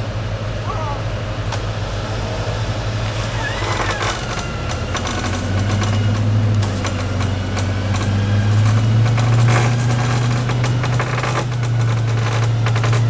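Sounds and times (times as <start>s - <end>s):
electric winch and engine droning: 0.0s - 13.0s
scattered clicks: 3.6s - 13.0s.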